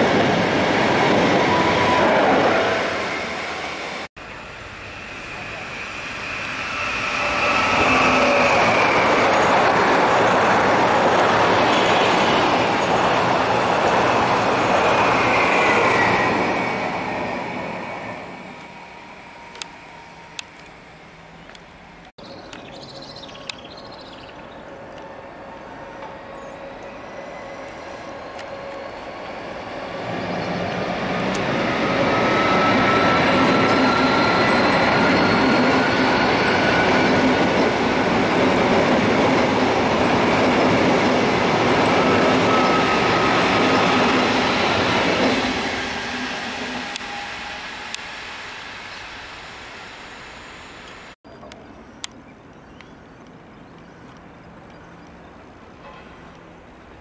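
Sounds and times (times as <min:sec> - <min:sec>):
train wheels rumbling on track: 0:00.0 - 0:22.6, 0:24.3 - 0:50.0
high train whine: 0:00.0 - 0:52.2.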